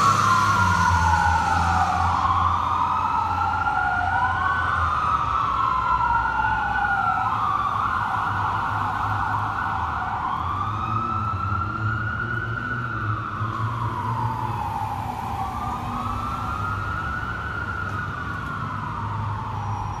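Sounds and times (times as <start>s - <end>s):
engine and traffic rumble: 0.0s - 20.0s
fire engine sirens wailing: 0.0s - 20.0s.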